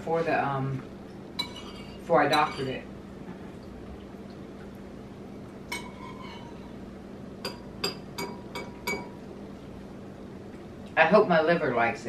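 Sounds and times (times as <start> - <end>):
spoons clinking against bowls: 1.4 - 2.8, 7.4 - 9.2.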